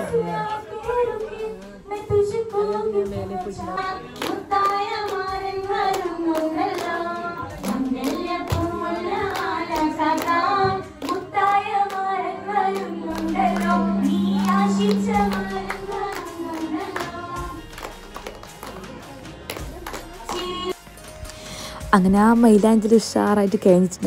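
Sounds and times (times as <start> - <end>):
hand claps: 4.2 - 12.1, 12.8 - 21.4
person singing: 12.5 - 17.6
steady low hum: 12.8 - 17.6.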